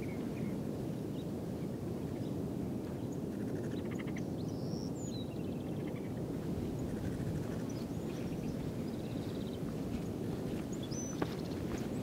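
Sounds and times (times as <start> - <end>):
small birds chirping: 6.8 - 12.0.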